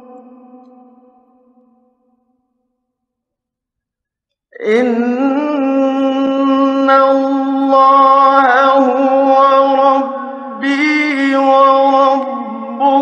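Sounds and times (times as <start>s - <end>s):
man chanting melodically: 0.0s - 1.5s, 4.6s - 13.0s.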